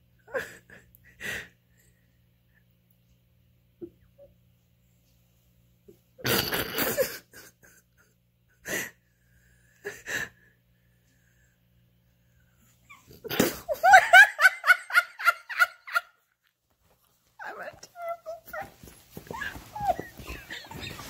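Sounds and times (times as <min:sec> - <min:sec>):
high-pitched laughter: 0:17.9 - 0:21.0
dog wheezy breathy puffs: 0:18.2 - 0:21.0.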